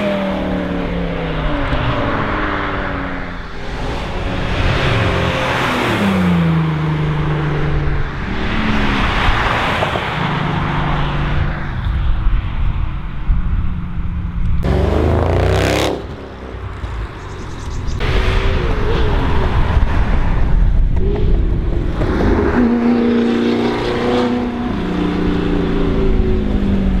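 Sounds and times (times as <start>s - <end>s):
cars driving past: 0.0s - 12.6s
car engine revving: 14.6s - 20.4s.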